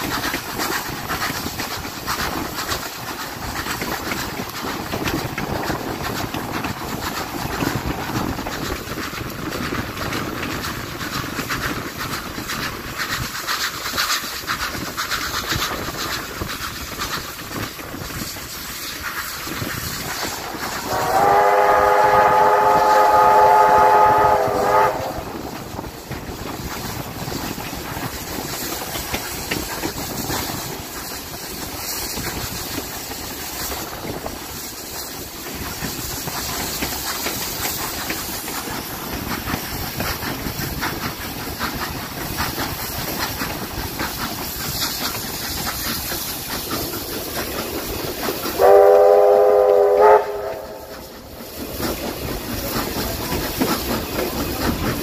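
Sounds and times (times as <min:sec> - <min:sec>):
rail clatter: 0:00.0 - 0:55.0
steam hiss: 0:00.0 - 0:55.0
steam whistle: 0:20.8 - 0:25.4, 0:48.6 - 0:51.1.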